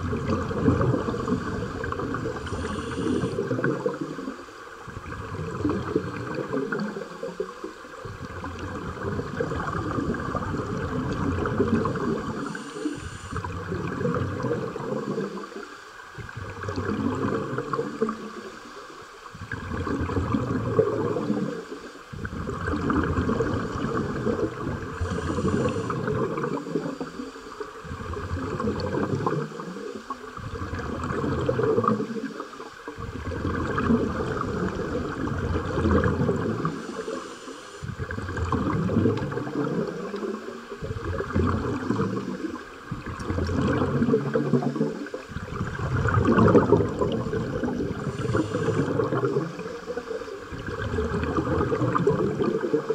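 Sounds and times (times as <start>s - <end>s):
scuba regulator exhaled bubbles: 0.0s - 52.9s.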